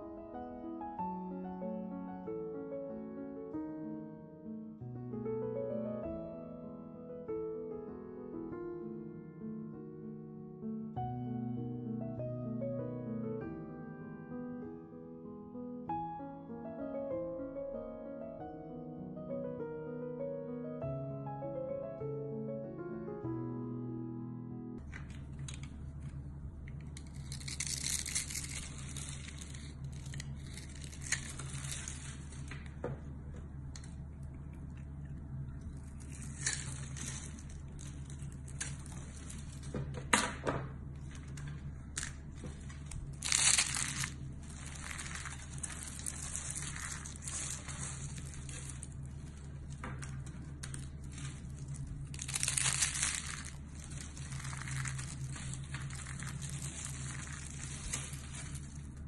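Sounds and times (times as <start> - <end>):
steady low hum: 22.9 - 59.0
soap shavings crunching by hand: 25.1 - 32.8, 35.5 - 39.8, 41.0 - 59.0.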